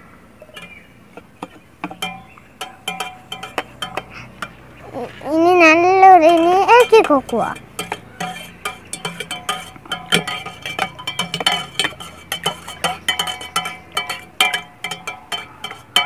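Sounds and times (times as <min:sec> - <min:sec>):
metal spoon clinking in a mug: 0:00.5 - 0:04.6, 0:06.2 - 0:16.0.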